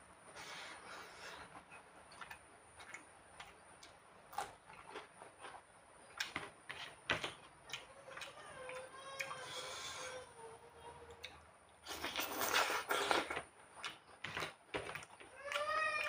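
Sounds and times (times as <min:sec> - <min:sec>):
fingers squishing food: 0:01.4 - 0:09.8, 0:11.0 - 0:16.0
chewing and lip smacks: 0:01.5 - 0:06.5, 0:11.1 - 0:15.8.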